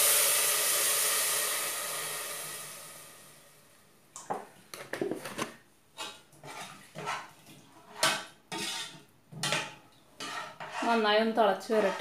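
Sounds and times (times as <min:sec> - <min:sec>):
milk hissing on hot pan: 0:00.0 - 0:03.6
metal spoon scraping saucepan: 0:06.0 - 0:12.0.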